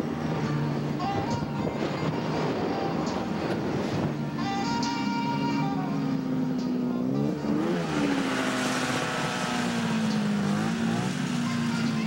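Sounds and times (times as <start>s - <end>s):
snowmobile engine revving: 7.1s - 12.0s.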